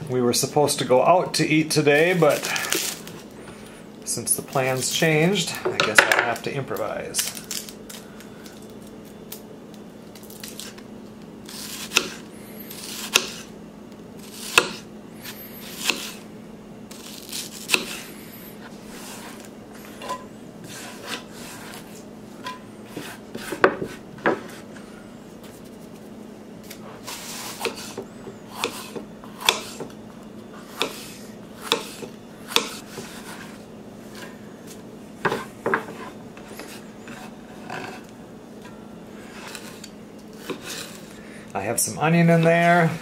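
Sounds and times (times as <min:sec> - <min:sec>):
knife chopping on wooden board: 0:11.5 - 0:12.2, 0:12.8 - 0:13.4, 0:14.3 - 0:14.8, 0:15.8 - 0:16.2, 0:17.3 - 0:18.0, 0:22.4 - 0:24.6, 0:27.4 - 0:30.0, 0:30.7 - 0:33.4, 0:35.2 - 0:36.7.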